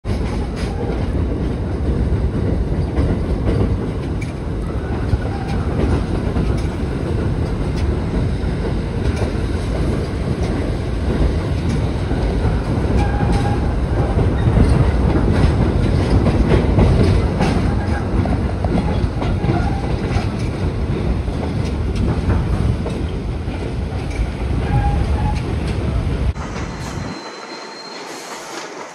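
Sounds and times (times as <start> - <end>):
subway train rumbling: 0.0 - 28.9
wheels clicking over rail joints: 0.1 - 26.4.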